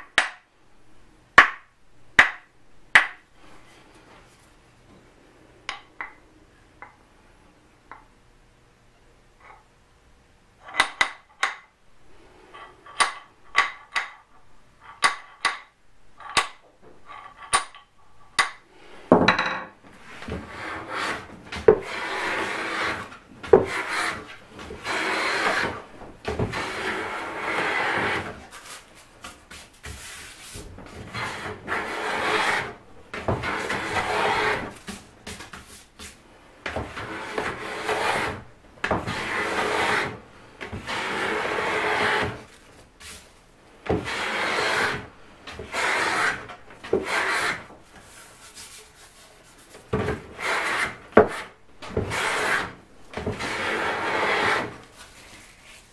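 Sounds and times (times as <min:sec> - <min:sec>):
hand plane shaving wood: 0:20.0 - 0:42.6, 0:43.9 - 0:55.9.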